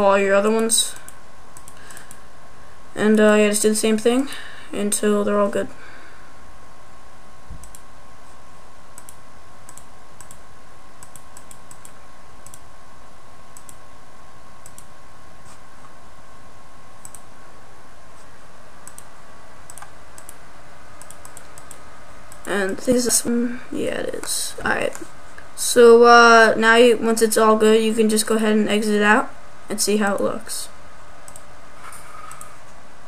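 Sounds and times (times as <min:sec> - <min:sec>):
computer mouse and keyboard clicks: 0:11.0 - 0:12.6, 0:21.0 - 0:22.8.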